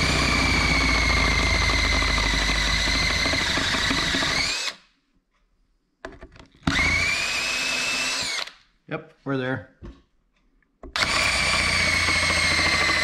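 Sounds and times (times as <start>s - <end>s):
power drill drilling steel: 0.0s - 4.8s, 6.6s - 8.6s, 10.9s - 13.0s.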